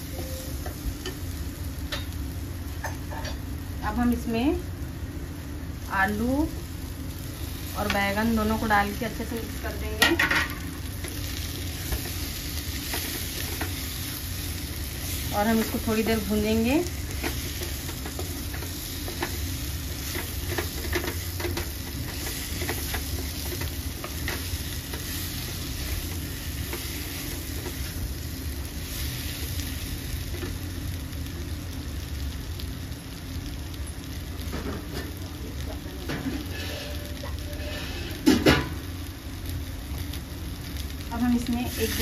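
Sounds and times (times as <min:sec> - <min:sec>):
vegetables sizzling in oil: 0:00.0 - 0:42.0
utensil scraping pan: 0:36.2 - 0:38.4.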